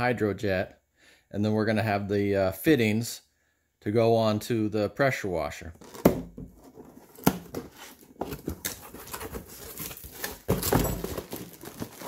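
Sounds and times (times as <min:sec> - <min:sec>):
cardboard box scraping and rustling: 0:05.8 - 0:12.0.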